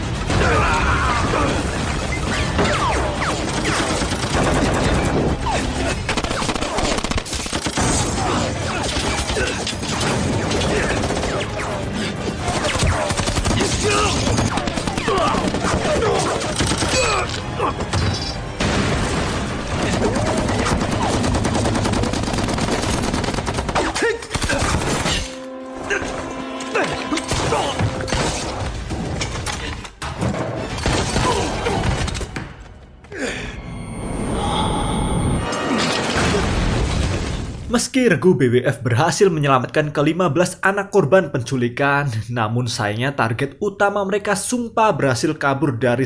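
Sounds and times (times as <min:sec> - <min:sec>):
film music: 0:00.0 - 0:37.8
people shouting: 0:00.3 - 0:01.8, 0:12.5 - 0:17.9
rapid automatic gunfire: 0:01.7 - 0:05.4, 0:06.0 - 0:08.2, 0:08.8 - 0:17.0, 0:19.4 - 0:25.2.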